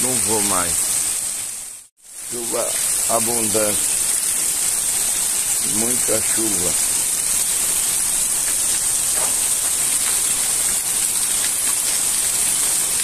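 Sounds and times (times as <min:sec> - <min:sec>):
heavy rain pouring: 0:00.0 - 0:13.0
water splashing on floor: 0:06.7 - 0:13.0.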